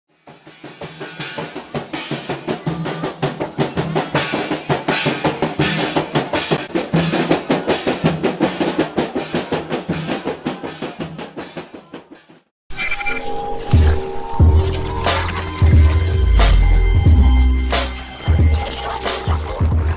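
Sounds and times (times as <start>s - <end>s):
frame drums beaten by hand: 0.3s - 12.4s, 13.8s - 19.9s
snare drum: 0.4s - 12.5s.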